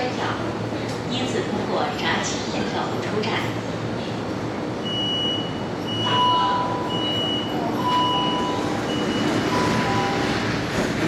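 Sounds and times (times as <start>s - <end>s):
two-tone electronic warning beeps: 4.8s - 10.4s
train running noise: 5.6s - 11.0s.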